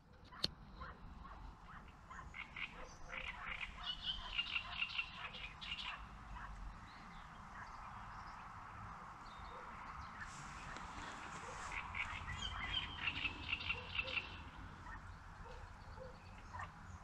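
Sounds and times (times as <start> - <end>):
frogs croaking in chorus: 0.8 - 8.8, 11.7 - 17.0.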